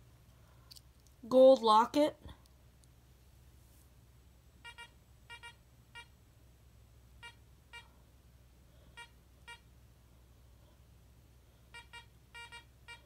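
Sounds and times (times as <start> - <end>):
metal detector beeps: 4.6 - 6.1, 7.2 - 7.9, 9.0 - 9.7, 11.7 - 13.0.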